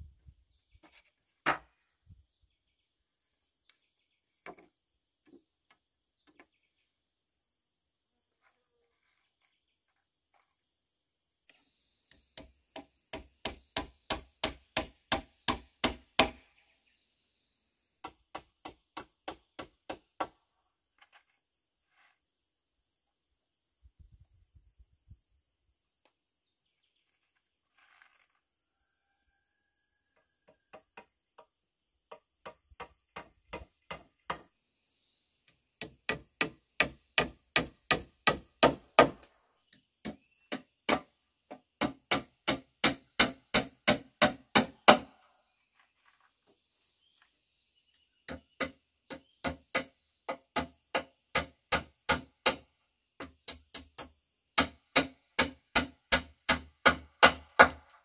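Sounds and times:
hammer blows on bamboo poles: 12.1s - 16.4s, 18.0s - 20.4s, 35.8s - 39.3s, 40.0s - 45.2s, 48.3s - 58.0s.

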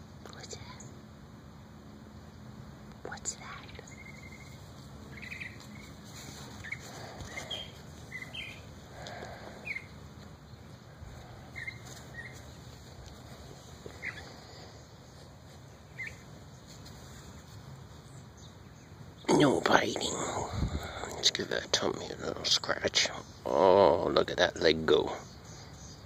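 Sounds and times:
low steady background hum: 0.0s - 26.0s
small birds chirping: 0.2s - 1.1s, 1.8s - 26.0s.

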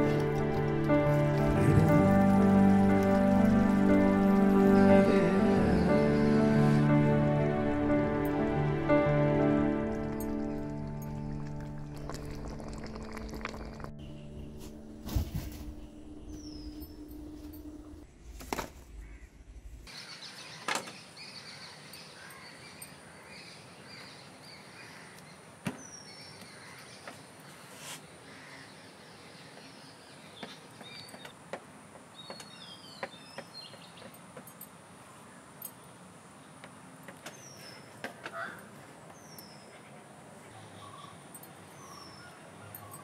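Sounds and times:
low steady hum: 9.7s - 19.9s
small birds chirping: 19.9s - 43.0s.

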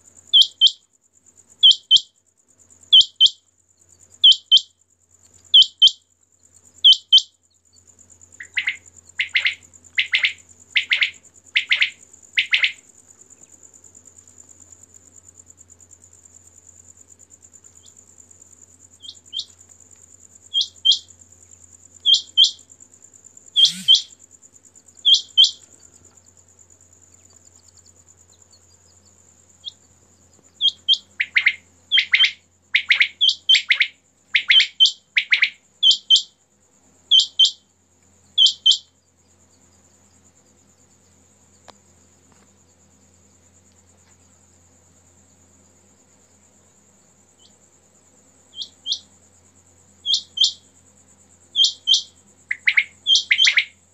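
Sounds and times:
insect trill: 0.0s - 53.9s
quail calling: 8.4s - 12.8s, 23.6s - 24.1s, 30.6s - 36.3s, 51.6s - 53.7s.

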